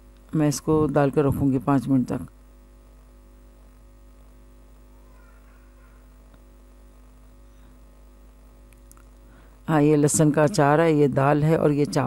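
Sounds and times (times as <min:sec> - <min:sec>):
electrical mains hum: 0:00.0 - 0:12.0.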